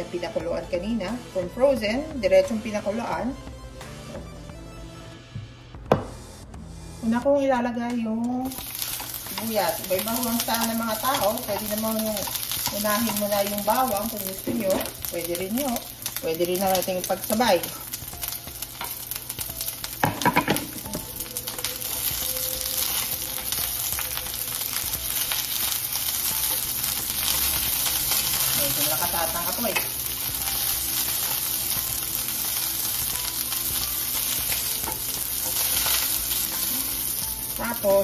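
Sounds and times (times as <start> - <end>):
onions sizzling in oil: 8.4 - 38.0.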